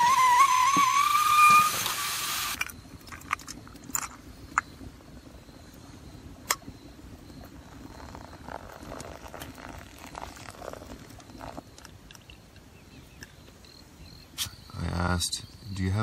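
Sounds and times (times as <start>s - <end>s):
water pouring from kettle: 7.4s - 12.7s.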